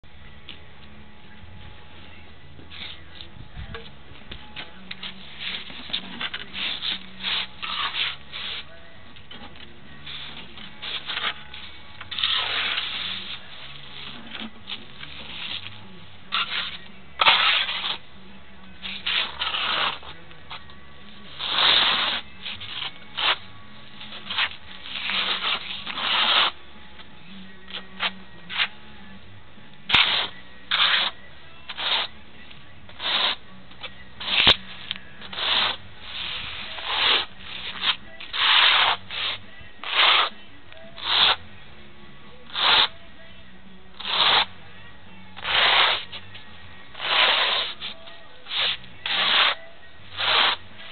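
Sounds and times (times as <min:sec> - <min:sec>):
trowel scraping wet mortar: 0:05.2 - 0:08.7, 0:12.1 - 0:14.5, 0:16.3 - 0:18.0, 0:18.9 - 0:20.1, 0:21.3 - 0:23.4, 0:24.2 - 0:26.6, 0:29.9 - 0:32.1, 0:33.0 - 0:33.4, 0:35.2 - 0:40.3, 0:41.0 - 0:41.4, 0:42.5 - 0:43.0, 0:44.0 - 0:44.5, 0:45.4 - 0:46.2, 0:47.0 - 0:50.9.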